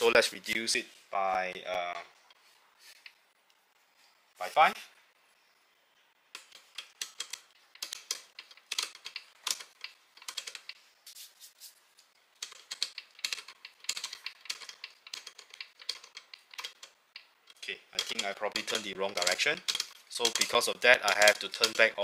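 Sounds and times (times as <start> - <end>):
grinder adjustment wheel clicking: 17.5 - 22.0.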